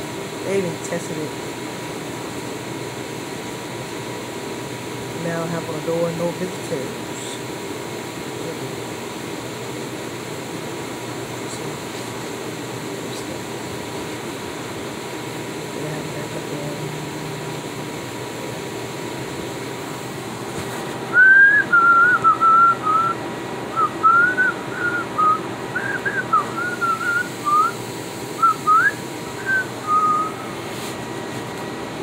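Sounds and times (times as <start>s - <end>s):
low background hum: 0.0s - 32.0s
woman whistling: 21.1s - 23.2s, 23.8s - 27.8s, 28.4s - 30.4s.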